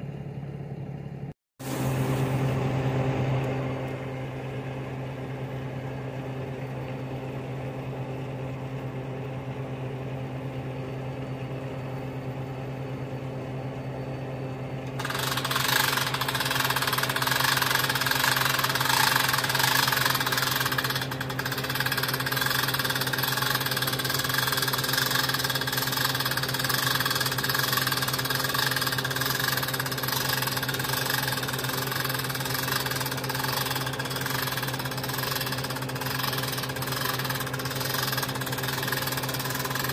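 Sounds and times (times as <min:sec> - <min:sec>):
diesel engine idling: 0:03.9 - 0:39.9
loud harsh noise: 0:15.0 - 0:39.9.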